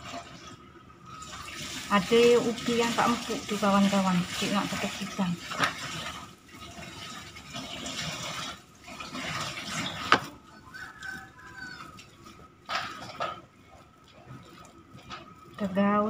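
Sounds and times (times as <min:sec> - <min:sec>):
hands squishing mashed food: 0:09.0 - 0:16.0.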